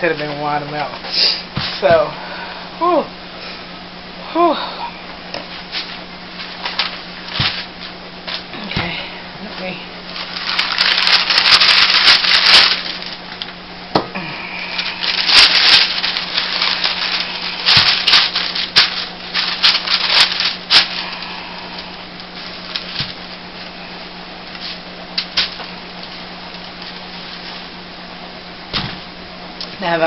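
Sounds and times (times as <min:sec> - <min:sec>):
plastic gloves rustling: 0:05.4 - 0:08.6, 0:09.4 - 0:13.6, 0:14.6 - 0:27.9.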